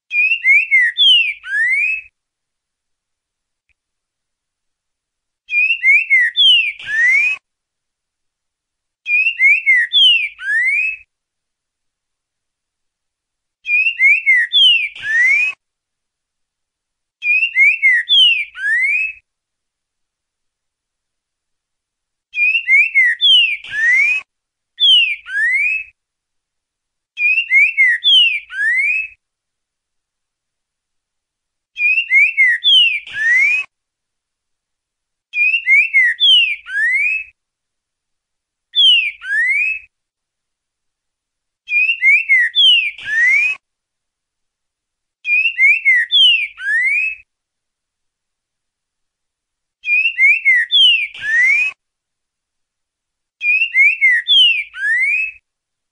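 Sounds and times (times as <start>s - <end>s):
bird singing slurred whistles: 0.1s - 2.1s, 5.5s - 7.4s, 9.1s - 11.1s, 13.6s - 15.6s, 17.2s - 19.2s, 22.3s - 26.0s, 27.2s - 29.2s, 31.8s - 33.7s, 35.3s - 37.4s, 38.8s - 39.9s, 41.7s - 43.6s, 45.2s - 47.3s, 49.8s - 51.8s, 53.4s - 55.4s.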